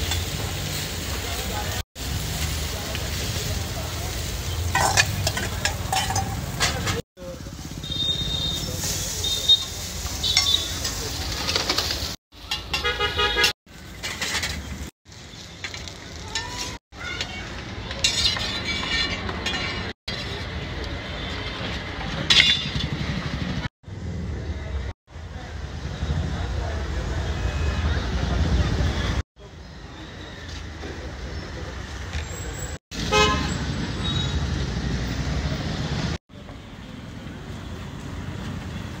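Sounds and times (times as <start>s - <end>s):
light sizzle: 0.0s - 12.7s
busy street noise: 0.0s - 39.0s
metal spatula scraping on griddle: 4.7s - 7.0s, 8.8s - 14.9s, 17.9s - 19.9s.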